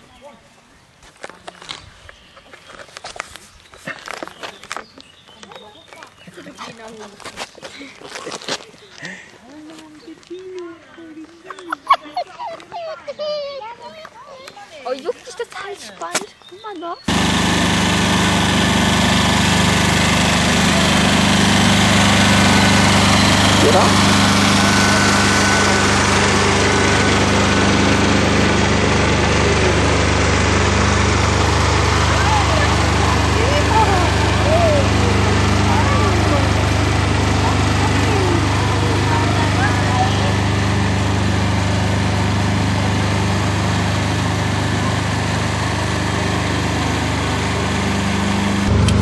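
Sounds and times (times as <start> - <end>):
lawn tractor engine humming: 17.0 - 49.0.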